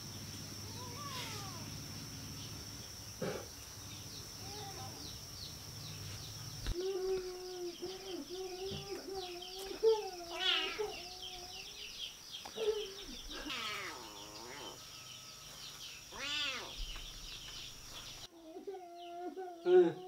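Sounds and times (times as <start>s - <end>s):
birds chirping: 0.0s - 20.0s
drawn out animal calls: 7.7s - 11.9s, 12.5s - 14.9s, 16.1s - 17.0s.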